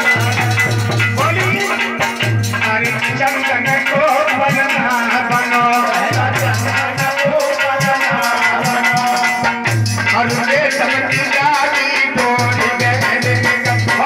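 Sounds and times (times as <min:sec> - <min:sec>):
man singing: 0:00.0 - 0:14.0
rattling percussion: 0:00.0 - 0:14.0
steady drum beat: 0:00.0 - 0:14.0.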